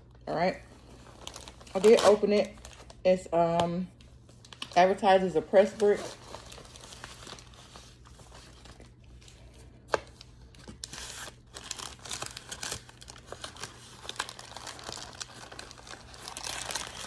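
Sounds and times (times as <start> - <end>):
plastic bag crinkling: 0.8 - 3.3, 4.4 - 17.0.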